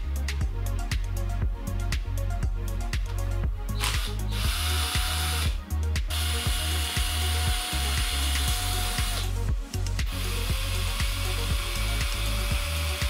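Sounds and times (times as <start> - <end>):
background music with beat: 0.0 - 13.0
cordless drill whining: 3.7 - 9.4, 10.1 - 13.0.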